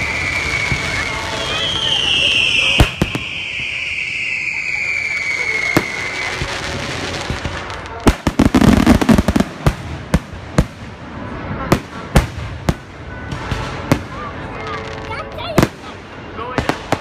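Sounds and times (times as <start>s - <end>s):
firework whistling: 0.0s - 10.1s
firework bangs: 0.0s - 17.0s
firework crackles: 0.0s - 17.0s.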